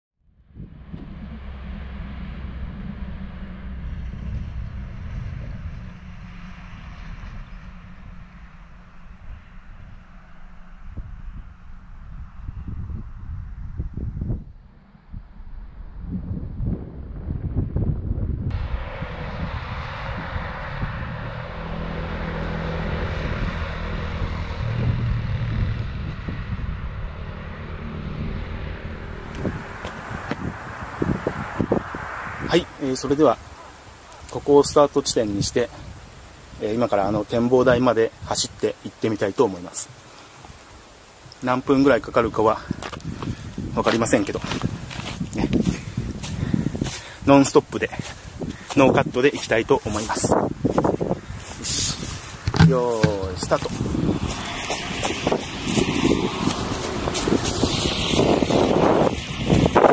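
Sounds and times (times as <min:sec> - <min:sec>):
distant engine drone: 0:00.2 - 0:36.6, 0:50.2 - 0:59.9
wind buffeting microphone: 0:00.3 - 0:39.0, 0:39.6 - 0:59.9.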